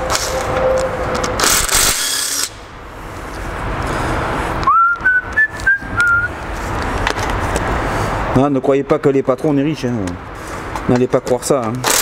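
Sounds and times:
person whistling a tune: 0:04.6 - 0:06.3.

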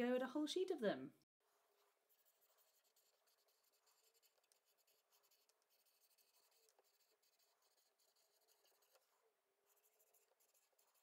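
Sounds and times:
marker squeaking on whiteboard: 0:02.7 - 0:09.0.

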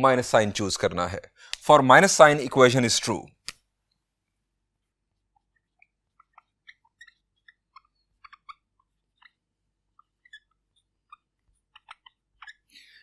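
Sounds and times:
marker pen on whiteboard: 0:04.7 - 0:12.8.

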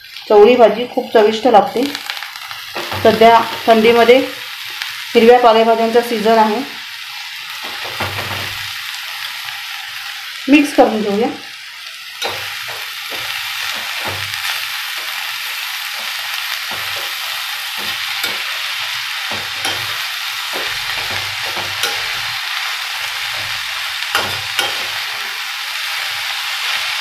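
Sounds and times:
oil sizzling in a pan: 0:00.0 - 0:27.0
spatula scraping a pan: 0:12.2 - 0:25.5.

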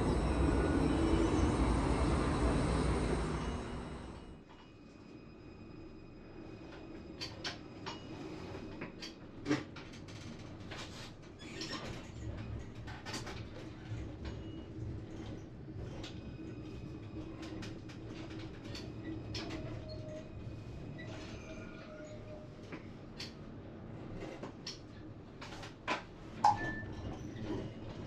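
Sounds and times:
tram electric hum: 0:00.0 - 0:11.4, 0:12.0 - 0:28.0.

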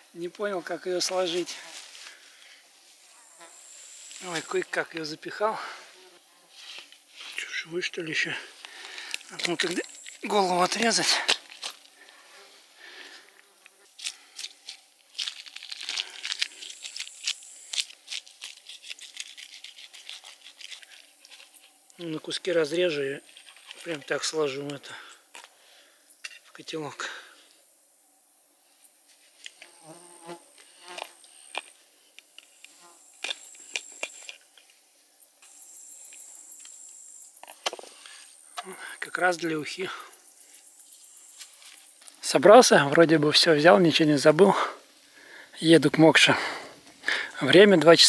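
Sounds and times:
insects trilling: 0:00.0 - 0:48.0
knife crunching through fish: 0:14.0 - 0:21.5.

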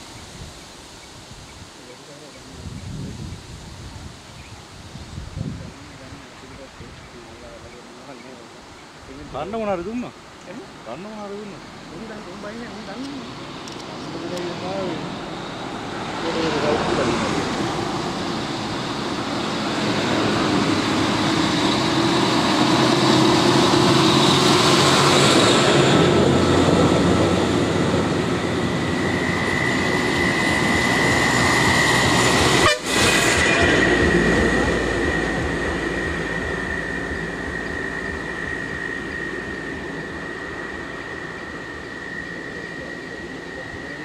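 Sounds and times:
steady high whine: 0:10.9 - 0:44.0
diesel bus passing: 0:11.4 - 0:44.0.

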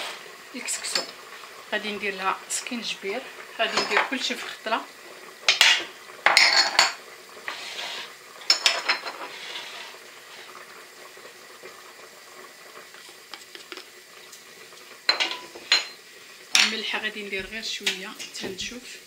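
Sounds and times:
spoons clinking on metal pot: 0:05.5 - 0:07.0, 0:15.1 - 0:16.0.

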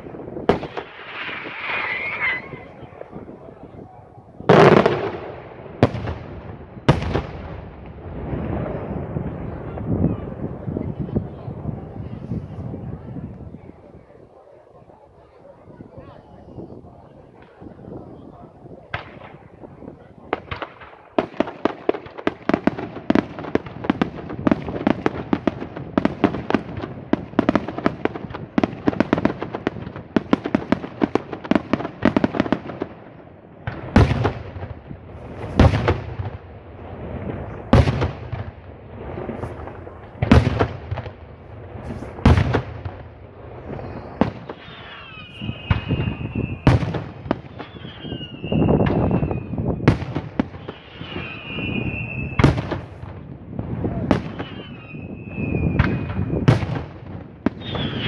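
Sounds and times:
rapid firework cracking bursts: 0:00.0 - 0:03.2, 0:04.5 - 0:08.9, 0:33.6 - 0:47.8, 0:48.8 - 0:55.0
falling firework whistles: 0:00.6 - 0:02.8, 0:43.7 - 0:52.9, 0:54.1 - 0:56.4, 0:57.5 - 0:58.0.

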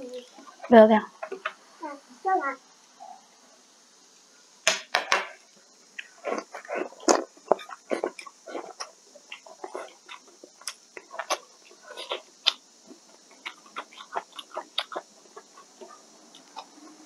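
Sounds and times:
person chewing food: 0:05.9 - 0:17.0.

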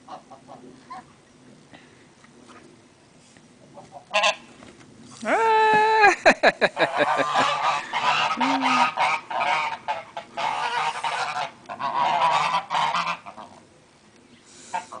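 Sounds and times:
geese honking: 0:03.8 - 0:04.4, 0:06.8 - 0:13.6.

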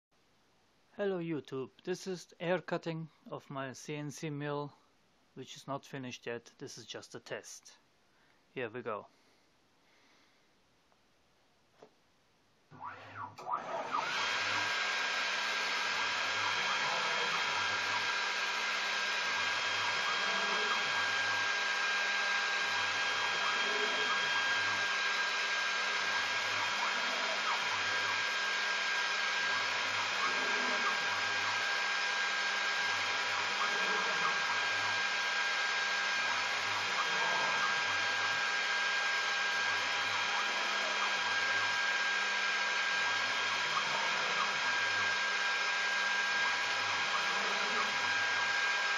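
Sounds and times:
spindle whining: 0:12.7 - 0:48.9
stepper motors humming: 0:12.8 - 0:48.9.

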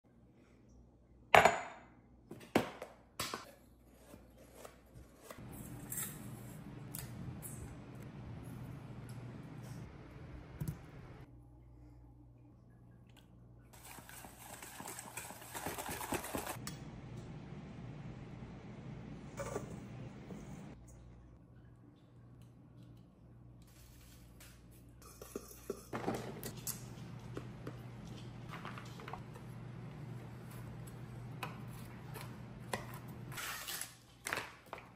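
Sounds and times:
steady low hum: 0:05.4 - 0:13.7, 0:16.6 - 0:24.0.

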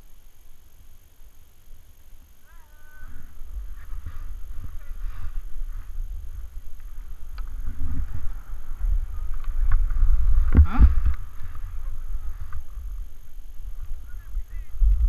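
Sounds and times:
wind buffeting microphone: 0:03.0 - 0:15.0
skis scraping on snow: 0:03.1 - 0:14.8.

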